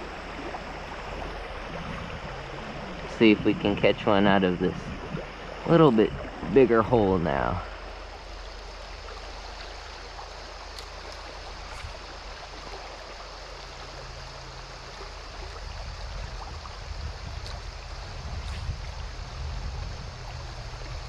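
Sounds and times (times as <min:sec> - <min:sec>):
low rumble: 0:00.0 - 0:09.5
water rushing over rocks: 0:00.0 - 0:21.0.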